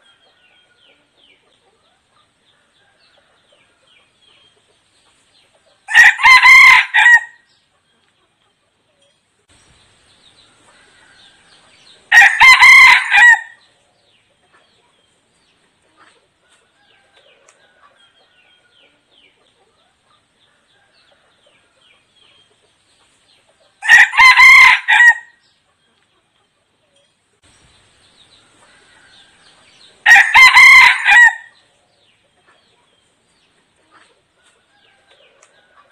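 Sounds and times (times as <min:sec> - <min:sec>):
rooster crowing: 0:05.9 - 0:07.4, 0:10.7 - 0:13.6, 0:23.8 - 0:25.4, 0:28.7 - 0:31.6.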